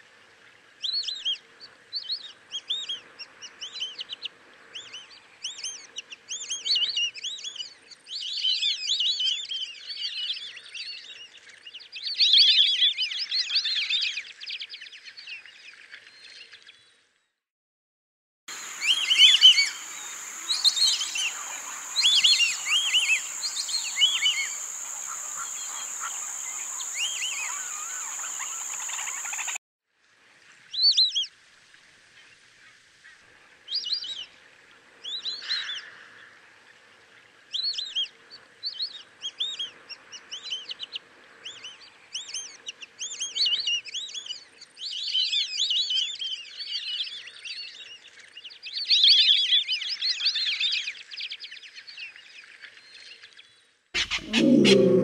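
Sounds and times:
ducks whistling: 18.6s - 29.6s, 54.0s - 55.0s.

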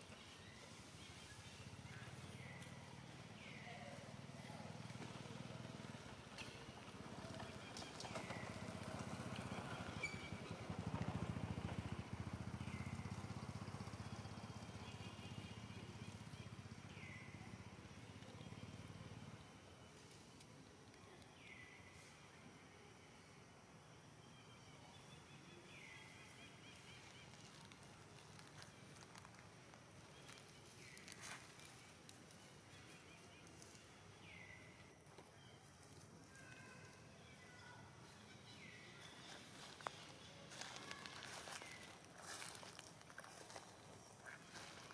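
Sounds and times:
small engine puttering: 4.8s - 19.4s
monkey walking in dry leaves: 26.7s - 34.0s, 39.0s - 44.9s.

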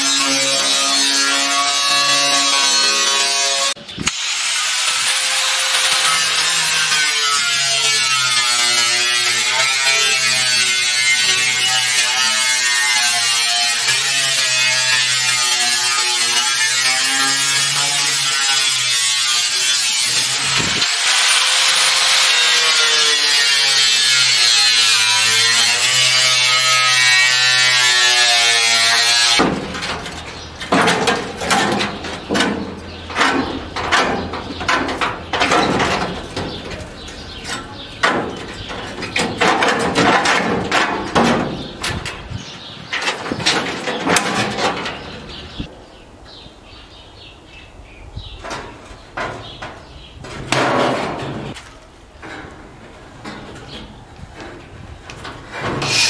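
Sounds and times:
angle grinder grinding metal: 0.0s - 29.5s, 55.8s - 56.0s
sheet metal clattering: 23.8s - 45.7s, 48.4s - 51.6s.

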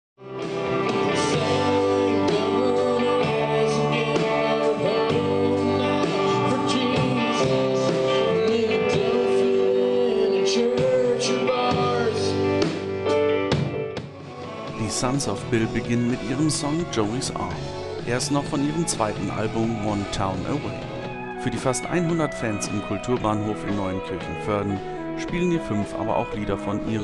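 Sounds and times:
electric guitars: 0.2s - 27.0s
keyboard: 0.2s - 27.0s
man singing: 1.2s - 12.6s, 14.3s - 20.7s.

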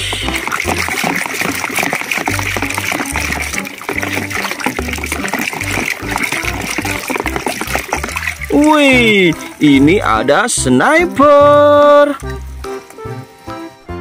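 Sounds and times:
background music with bass line: 0.0s - 1.0s, 2.3s - 14.0s
small splashy clicks: 0.0s - 9.8s, 12.1s - 13.1s
mud squelching and sloshing: 0.0s - 13.0s.

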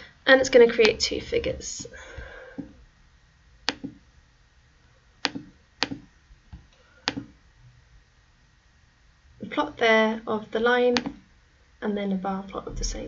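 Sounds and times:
computer mouse clicking: 3.6s - 4.0s, 5.2s - 6.0s, 7.0s - 7.3s, 11.0s - 11.2s.

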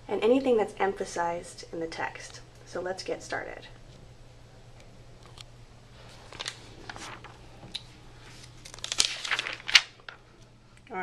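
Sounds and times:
paper rustling: 6.0s - 10.3s
sharp paper crinkle: 6.2s - 10.3s.

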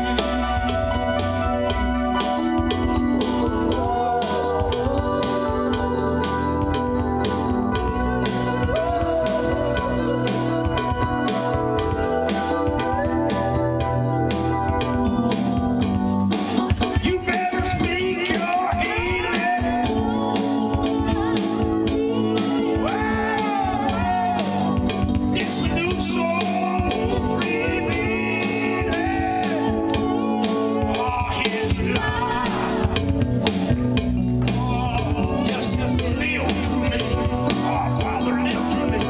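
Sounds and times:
electronic keyboard: 0.0s - 39.0s
man singing into a microphone: 3.2s - 7.0s, 7.6s - 14.4s, 16.8s - 33.2s, 34.4s - 39.0s.

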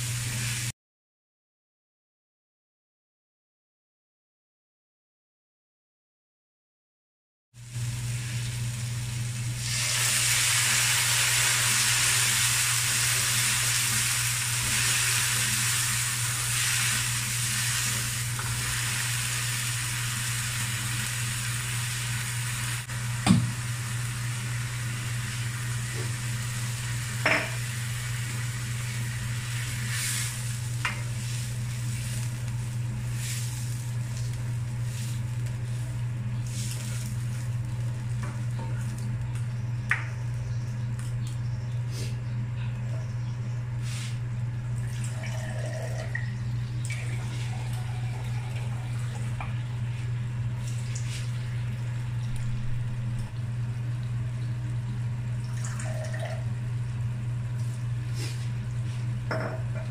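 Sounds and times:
food sizzling in a wok: 0.0s - 0.7s, 7.6s - 38.3s
steady low hum: 7.6s - 59.9s.

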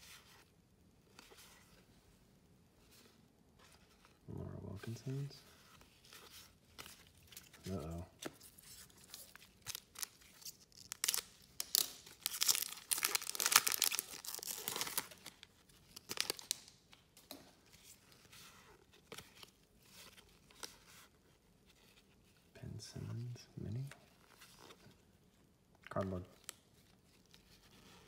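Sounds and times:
foil wrapper tearing and crinkling: 9.1s - 16.8s.

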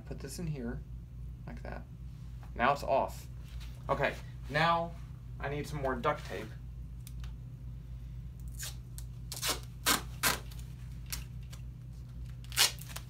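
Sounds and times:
duct tape ripping: 8.5s - 11.6s, 12.2s - 13.0s.

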